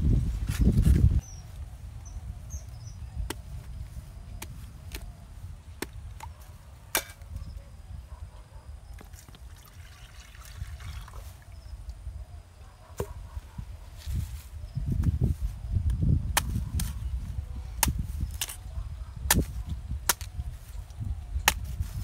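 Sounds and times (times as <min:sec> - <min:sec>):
machete striking coconut: 0:06.9 - 0:07.3, 0:17.8 - 0:18.6, 0:19.3 - 0:20.3
water trickling into pot: 0:09.5 - 0:11.5.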